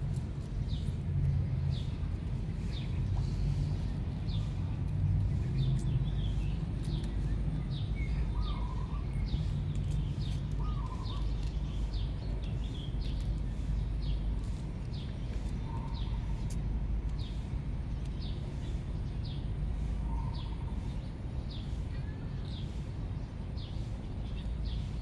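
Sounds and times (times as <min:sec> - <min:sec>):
low outdoor rumble: 0:00.0 - 0:25.0
small bird chirping: 0:05.4 - 0:22.9.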